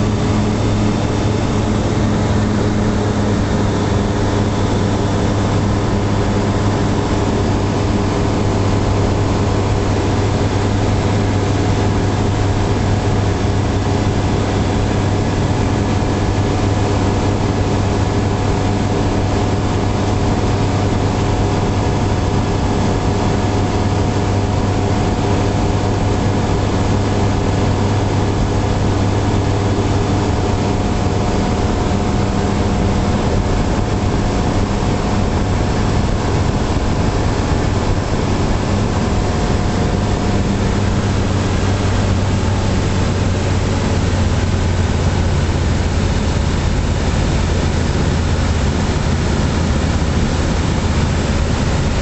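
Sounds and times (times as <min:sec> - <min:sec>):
light aircraft engine drone: 0:00.0 - 0:52.0.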